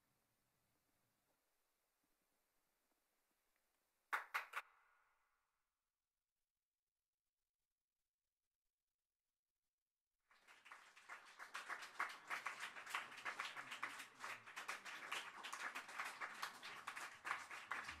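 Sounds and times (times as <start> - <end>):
audience applauding: 10.3 - 18.0.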